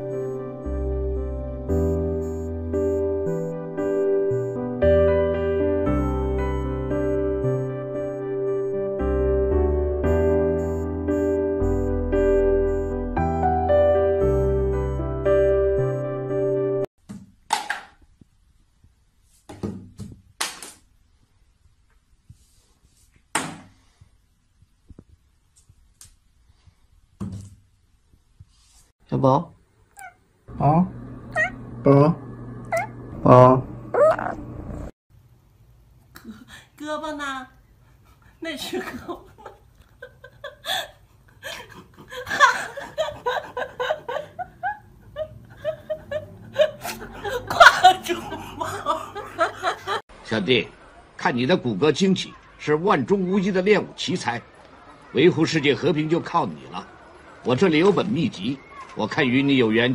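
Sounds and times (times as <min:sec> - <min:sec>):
person laughing: 0:38.8 - 0:50.0.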